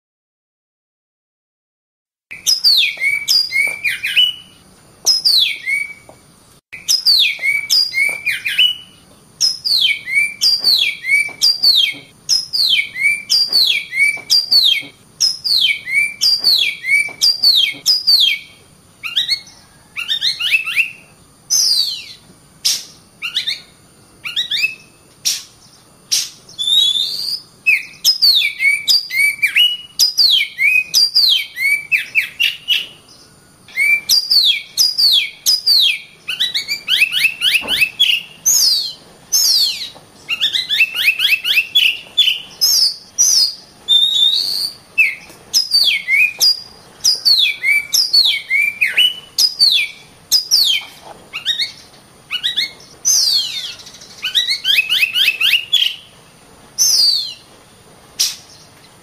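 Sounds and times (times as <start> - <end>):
bird singing whistled notes and trills: 2.3 - 57.5, 58.2 - 59.0.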